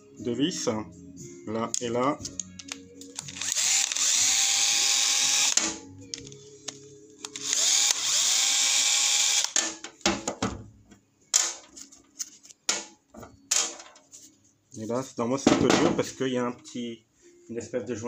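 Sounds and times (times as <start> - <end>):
cordless screwdriver motor whine: 3.2 - 5.8, 7.2 - 9.6
clicks and knocks of handling parts: 9.5 - 14.2.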